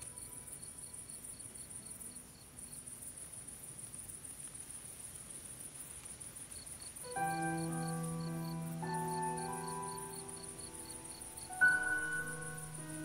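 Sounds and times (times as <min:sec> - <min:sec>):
slower insect chirping: 0:00.0 - 0:13.0
insects trilling high-pitched: 0:06.5 - 0:13.0.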